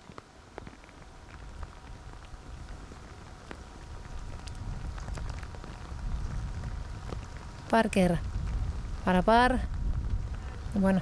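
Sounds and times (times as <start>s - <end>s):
small ticks: 0.0s - 7.8s
low rumble: 1.2s - 11.0s.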